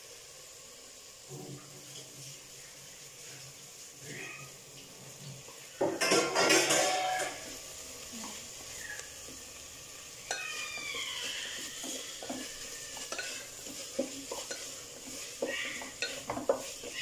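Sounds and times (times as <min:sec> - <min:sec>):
onions and tomatoes sizzling: 0:00.0 - 0:17.0
spatula scraping pot: 0:06.0 - 0:07.6, 0:10.2 - 0:17.0.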